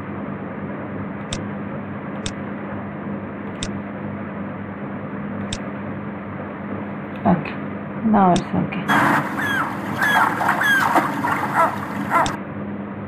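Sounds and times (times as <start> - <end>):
low hum: 4.9 - 12.4.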